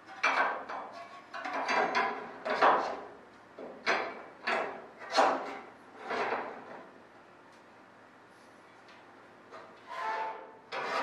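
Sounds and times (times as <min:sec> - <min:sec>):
metal tube clanking and scraping: 0:09.6 - 0:11.0.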